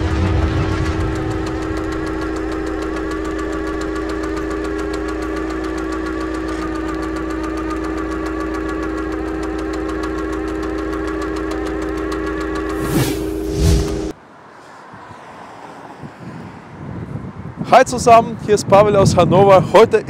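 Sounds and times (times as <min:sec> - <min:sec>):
rapid mechanical ticking: 0:00.0 - 0:14.1
steady droning hum: 0:00.0 - 0:14.2.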